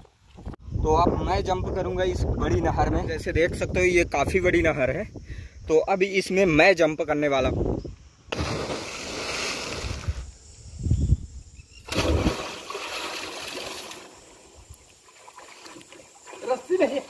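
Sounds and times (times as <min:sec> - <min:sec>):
heavy splash into water: 0:08.3 - 0:10.1, 0:11.9 - 0:14.2
churning water: 0:11.9 - 0:14.3, 0:15.0 - 0:17.0.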